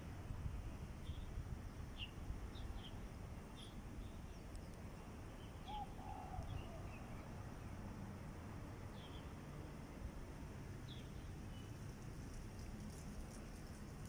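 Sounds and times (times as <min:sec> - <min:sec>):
lower bird call: 0:05.5 - 0:07.3.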